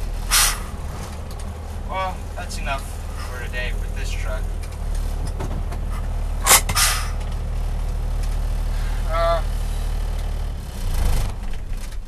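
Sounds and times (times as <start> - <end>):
truck engine running: 0.0 - 12.0
short hiss: 0.3 - 0.7, 6.5 - 7.2
sharp clack: 6.4 - 7.3.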